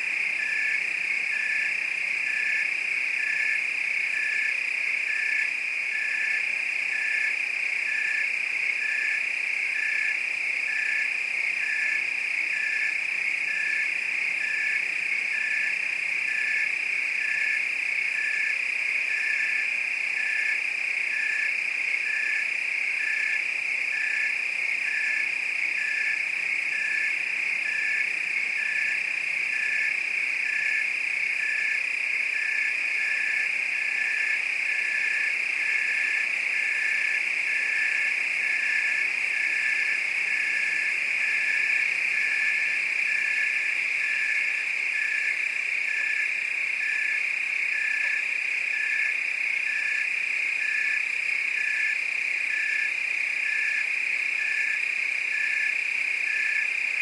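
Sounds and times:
crickets trilling: 0.0 - 57.0
pulsed cricket chirp: 0.0 - 57.0.

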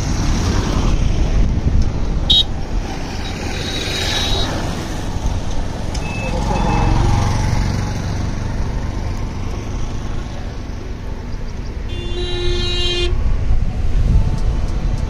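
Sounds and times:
vehicle driving on road: 0.0 - 15.0
vehicle horn blast: 11.9 - 13.2.

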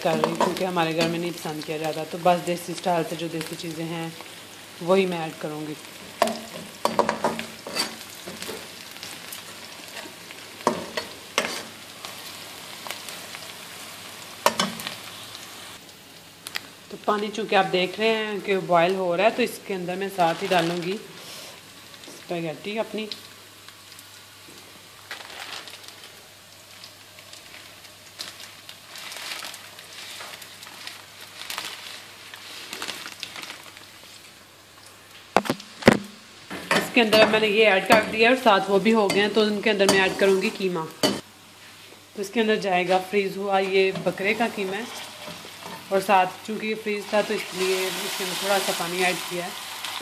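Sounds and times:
onions sizzling in hot oil: 0.0 - 50.0
water boiling and bubbling: 0.0 - 50.0
metal spoon scraping wok: 6.2 - 8.6, 10.7 - 11.7.

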